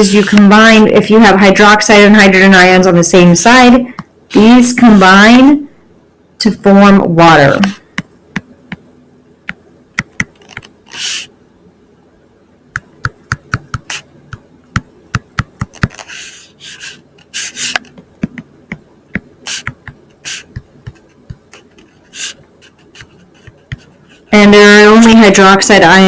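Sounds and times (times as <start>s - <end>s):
stylus tapping on tablet screen: 7.6s - 8.9s, 9.5s - 10.7s, 12.7s - 16.1s, 17.7s - 21.9s, 22.6s - 24.0s.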